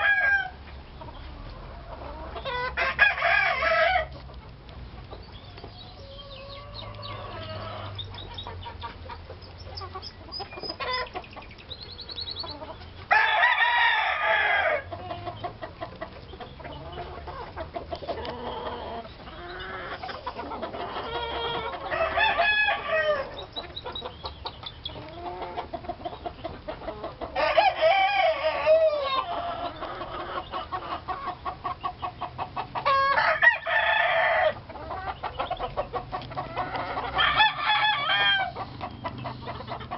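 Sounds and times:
rooster crowing: 0.0 - 0.6, 2.8 - 4.1, 13.1 - 14.9, 21.4 - 23.4, 27.4 - 29.2, 32.9 - 34.6, 36.9 - 38.6
chickens clucking: 0.0 - 39.9.

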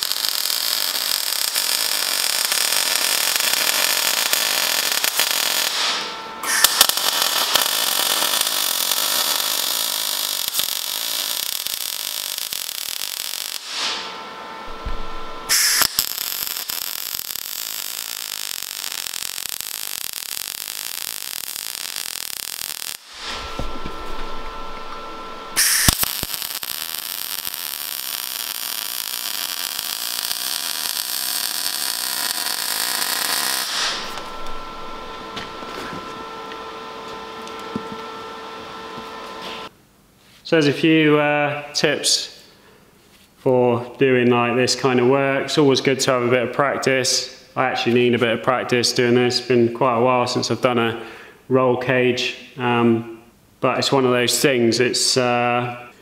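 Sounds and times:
welding arc crackling hiss: 0.0 - 39.7.

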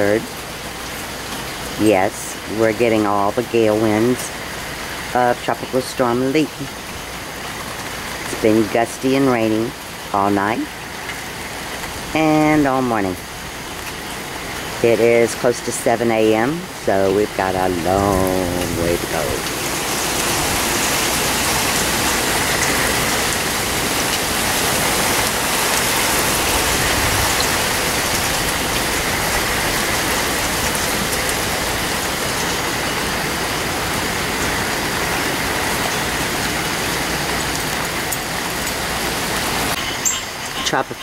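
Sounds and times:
rain falling on foliage: 0.0 - 41.0
storm wind through trees: 0.0 - 41.0.

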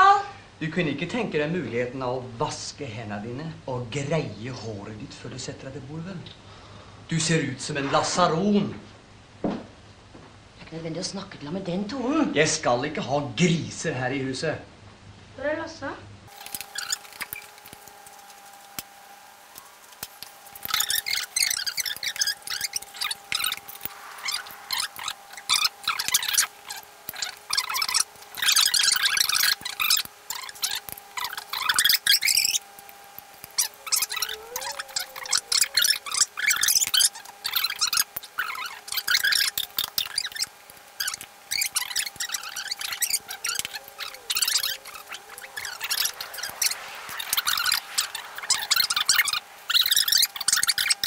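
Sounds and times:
steady hum: 14.6 - 51.0
scattered clicks: 16.3 - 51.0
sped-up squeaky voices chattering: 16.4 - 17.6, 20.5 - 32.6, 33.5 - 51.0
sped-up voices chattering: 37.2 - 51.0.

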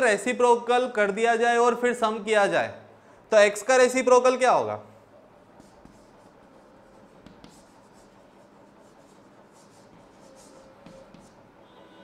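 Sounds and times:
chalk scratching on blackboard: 5.4 - 11.5
chalk tapping board: 5.5 - 11.5.

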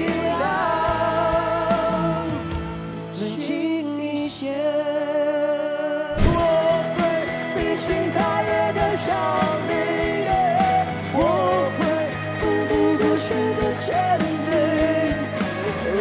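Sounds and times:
drums keeping a steady beat: 0.0 - 3.4, 6.2 - 16.0
electric guitar: 0.0 - 16.0
live pop-rock band: 0.0 - 16.0
man singing: 0.0 - 16.0.

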